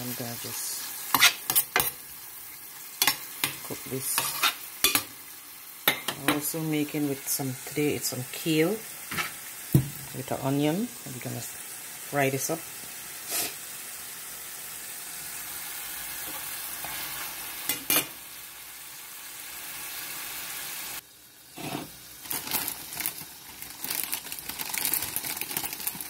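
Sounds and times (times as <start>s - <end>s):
chicken sizzling in a pan: 0.0s - 26.0s
clicks and crackles in oily pan: 2.9s - 5.1s, 22.3s - 26.0s.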